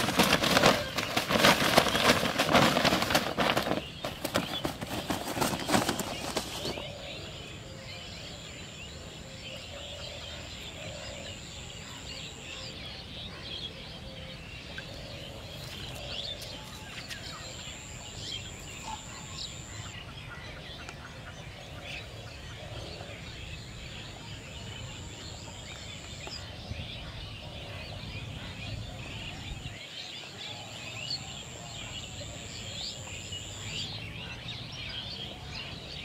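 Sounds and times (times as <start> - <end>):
lower bird calls: 0.0 - 14.1
small birds chirping: 0.0 - 36.0.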